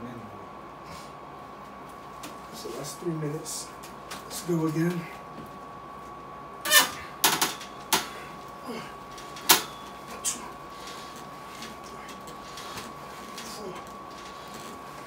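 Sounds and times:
man exhaling and grunting: 0:08.6 - 0:09.0.

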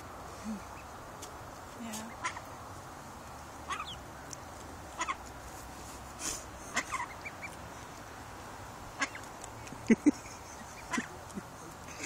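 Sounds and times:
ducklings peeping: 0:02.0 - 0:02.6, 0:03.2 - 0:05.4, 0:06.7 - 0:08.1, 0:08.9 - 0:12.0.

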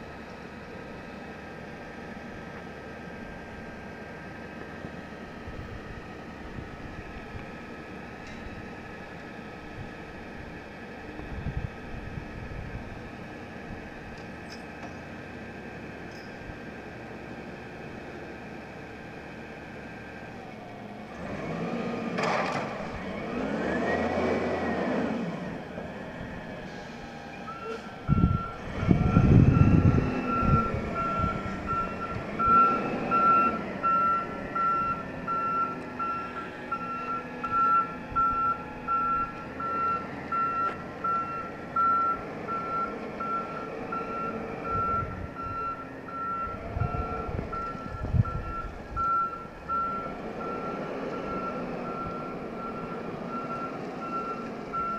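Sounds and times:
diesel truck engine revving: 0:00.0 - 0:54.9
truck backup alarm beeping: 0:26.9 - 0:54.9.

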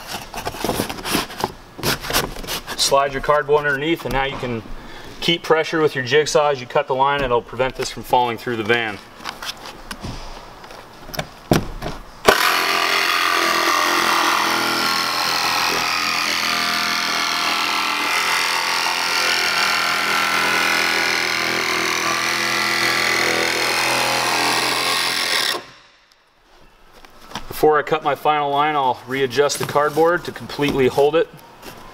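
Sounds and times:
jigsaw cutting sheet metal: 0:12.3 - 0:25.9.

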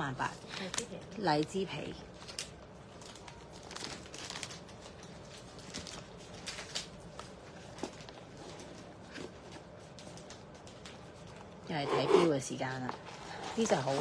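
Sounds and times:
plastic wrapping crinkling: 0:01.8 - 0:11.6.

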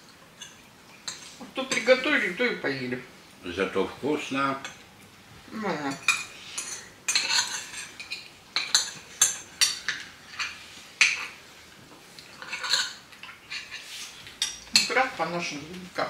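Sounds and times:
cutlery clinking on plates: 0:00.4 - 0:02.1, 0:05.8 - 0:11.4, 0:12.2 - 0:15.2.

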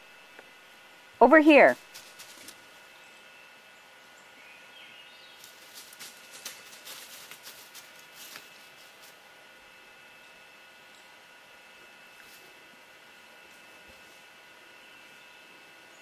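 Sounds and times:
dog paws crackling through dry leaves: 0:01.8 - 0:02.9, 0:05.2 - 0:09.4.

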